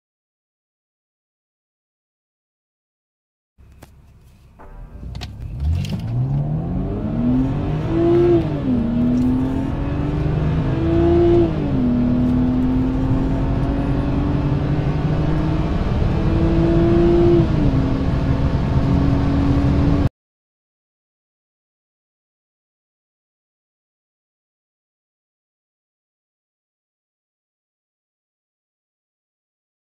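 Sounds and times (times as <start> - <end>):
car engine accelerating: 3.6 - 20.1.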